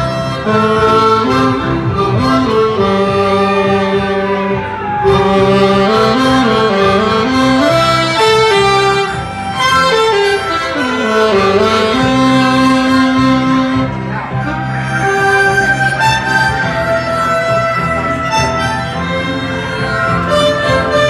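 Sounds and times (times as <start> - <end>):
amplified harmonica melody: 0.0 - 21.0.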